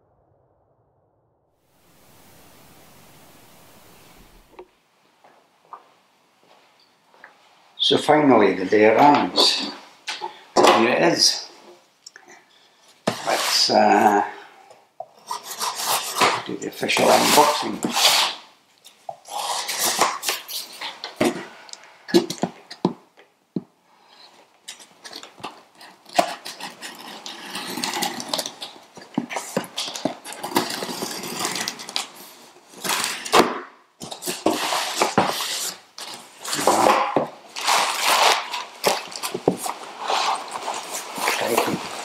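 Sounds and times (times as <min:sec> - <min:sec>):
packing tape slit and pulled: 0:24.7 - 0:28.8, 0:37.6 - 0:41.6
plastic packing rustling: 0:34.0 - 0:42.0.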